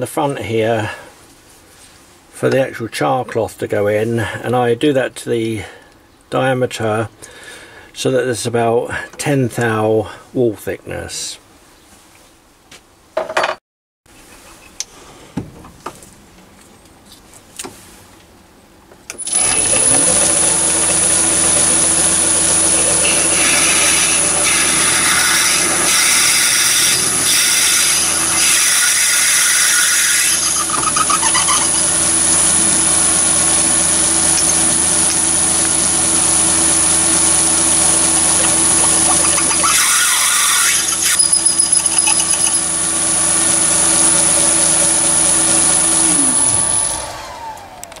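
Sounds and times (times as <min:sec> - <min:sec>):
lathe whining: 0:19.2 - 0:48.0.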